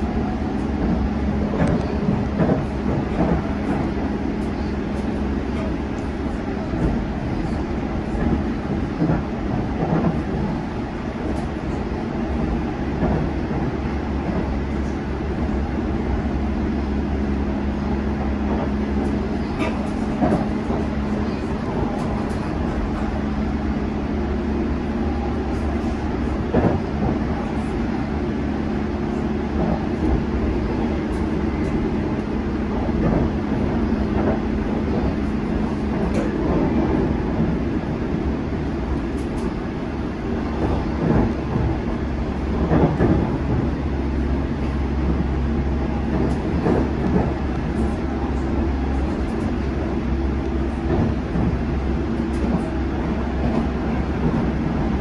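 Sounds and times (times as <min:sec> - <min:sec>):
train low rumble and hum: 0:00.0 - 0:55.0
train running gear knock: 0:00.5 - 0:07.1, 0:08.1 - 0:11.7, 0:12.3 - 0:15.0, 0:18.3 - 0:23.2, 0:25.8 - 0:27.6, 0:29.5 - 0:37.6, 0:40.6 - 0:43.9, 0:46.0 - 0:49.7, 0:50.5 - 0:55.0.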